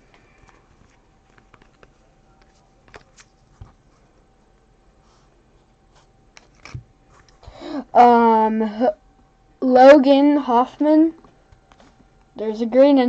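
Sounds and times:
baseball cards being handled: 0.4s - 4.6s, 6.0s - 7.4s.

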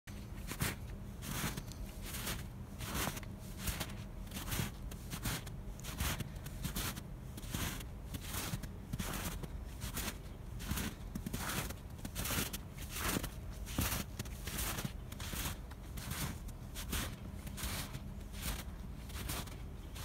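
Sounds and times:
footsteps in snow: 0.2s - 20.0s.

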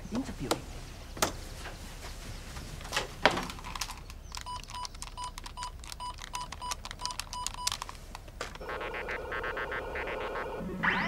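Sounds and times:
keypad button clicks: 4.4s - 7.8s
keypad confirmation beeps: 4.4s - 7.8s.

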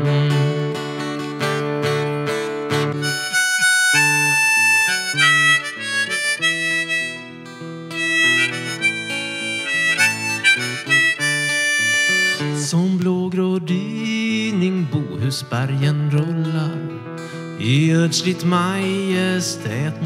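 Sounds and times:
harmonica melody: 0.0s - 12.8s
acoustic guitar chords: 0.0s - 20.0s.

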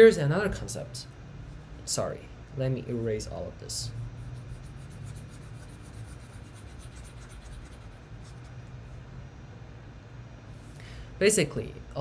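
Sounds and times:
low hum: 0.2s - 11.2s
stylus scratching on tablet: 3.9s - 8.7s.

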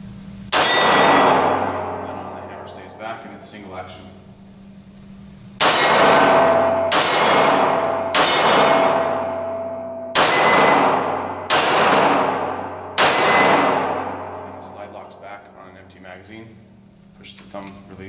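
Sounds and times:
pistol shots: 0.5s - 2.8s, 5.6s - 14.8s
steel target ringing: 0.5s - 3.8s, 5.6s - 16.0s
gunshot echo: 5.6s - 15.1s.

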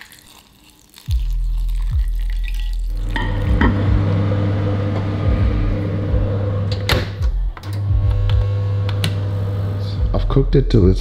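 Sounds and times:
water pouring into bowl: 0.0s - 3.2s
low hum: 2.8s - 10.9s.

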